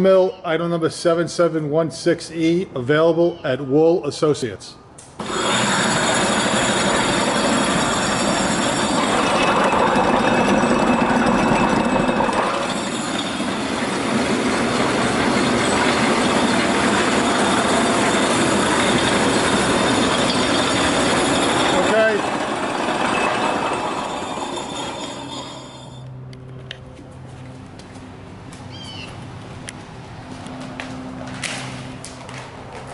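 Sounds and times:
stone mill motor whirring: 5.2 - 26.1.

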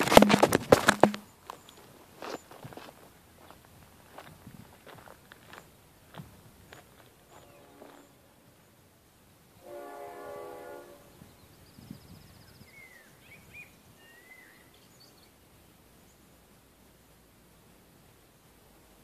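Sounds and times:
low outdoor hiss: 0.0 - 19.0
birds chirping: 5.2 - 8.9, 11.0 - 16.4
faint train horn: 7.2 - 8.5, 9.6 - 11.5.

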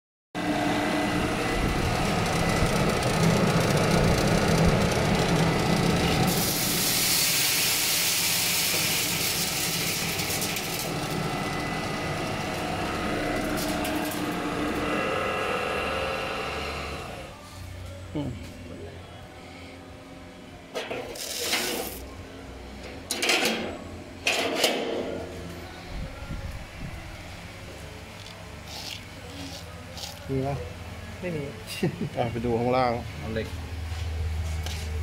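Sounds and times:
continuous machine noise: 0.4 - 35.0
coffee beans poured into metal chute: 6.0 - 11.2, 13.4 - 14.5, 21.1 - 22.0.

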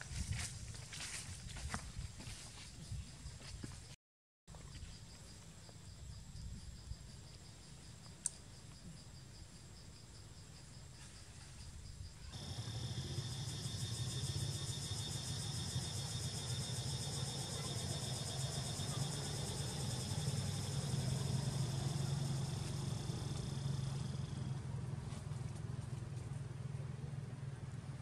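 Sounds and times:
insects buzzing: 4.8 - 24.6
road traffic rumble: 12.4 - 28.0.

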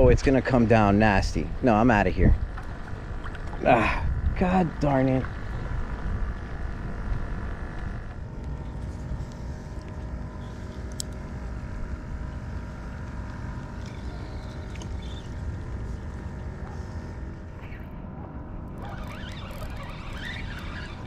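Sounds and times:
pedal drive mechanical hum: 0.0 - 21.0.

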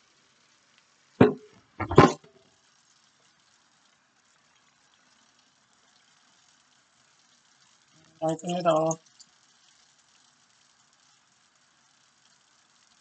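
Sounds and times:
faint steady hiss: 0.0 - 13.0
kitchenware knocking: 1.2 - 2.3.

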